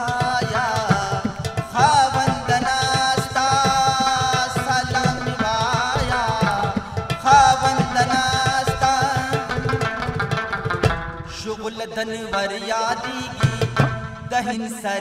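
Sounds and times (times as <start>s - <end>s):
man singing folk song: 0.0s - 10.0s, 11.3s - 15.0s
clay pot drum: 0.0s - 11.3s.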